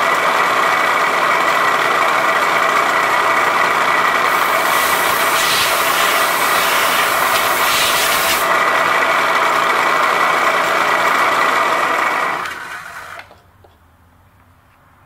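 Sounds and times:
milling machine cutting with whine: 4.2 - 8.7.

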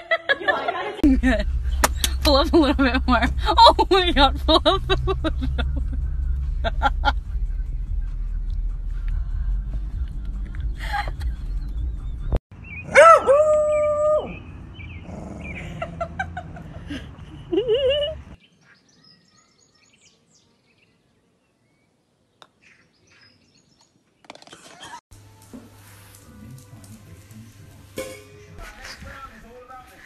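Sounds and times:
car road rumble: 1.0 - 18.4
dog howling: 12.9 - 14.4.

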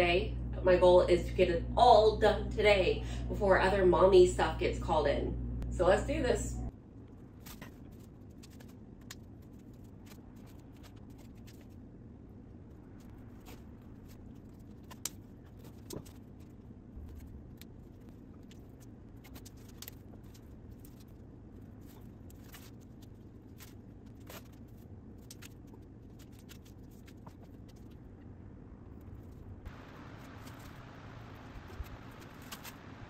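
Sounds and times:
low steady hum: 0.0 - 33.0
tape clicks and crackles: 7.0 - 11.8, 13.0 - 28.3, 29.0 - 33.0.

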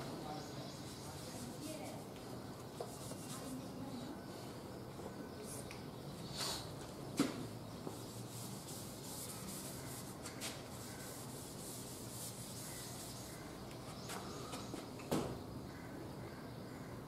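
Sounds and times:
duster wiping chalkboard: 0.7 - 3.8, 7.8 - 14.3.

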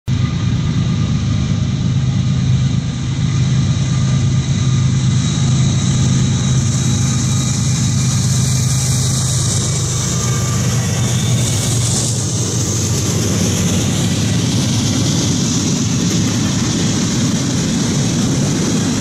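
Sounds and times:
diesel locomotive engine drone: 0.1 - 19.0
rail and wheel noise: 0.1 - 19.0.

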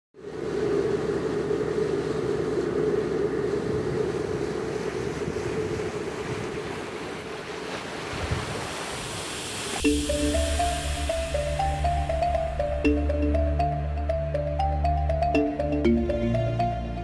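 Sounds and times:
wind and sea rush: 0.2 - 17.0
low hum: 9.8 - 17.0.

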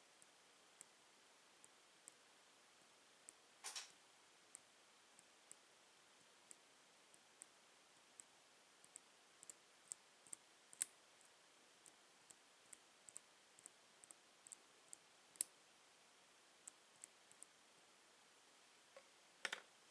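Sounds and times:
loud sharp clicks: 3.6 - 3.9
faint high-pitched clicking: 8.2 - 15.6, 16.6 - 17.6.

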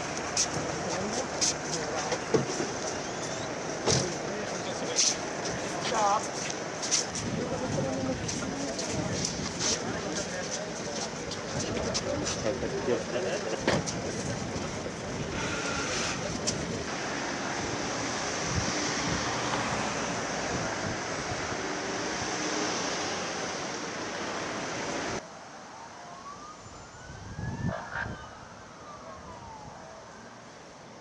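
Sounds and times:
loud outdoor rushing noise: 0.0 - 25.7
ambulance siren wailing: 25.0 - 31.0.

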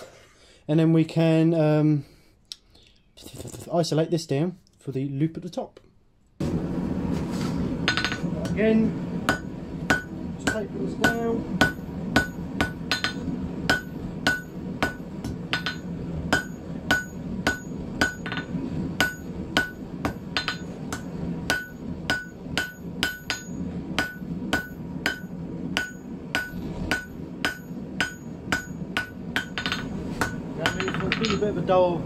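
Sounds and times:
low rumble: 6.4 - 32.0
hammer striking metal on anvil: 7.9 - 8.6, 9.3 - 31.6.

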